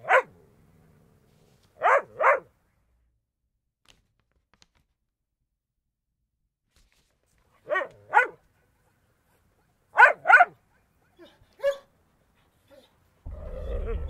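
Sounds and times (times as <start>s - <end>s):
dog barking: 0.0s - 0.4s, 1.8s - 2.5s, 7.6s - 8.4s, 9.9s - 10.6s, 11.2s - 11.9s.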